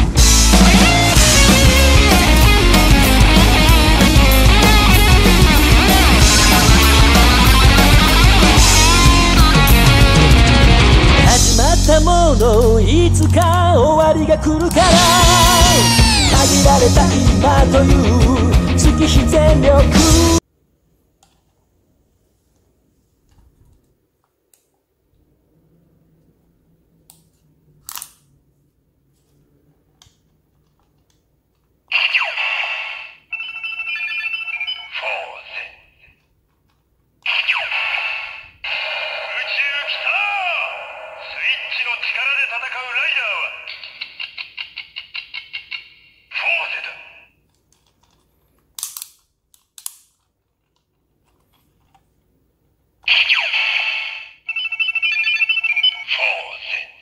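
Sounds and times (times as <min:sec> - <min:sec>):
electronic sound effect from toy: 0:15.5 - 0:16.5, 0:31.9 - 0:36.1, 0:37.3 - 0:47.3, 0:53.1 - 0:57.0
plastic click: 0:48.8 - 0:52.0
beeping jingle: 0:54.5 - 0:56.2.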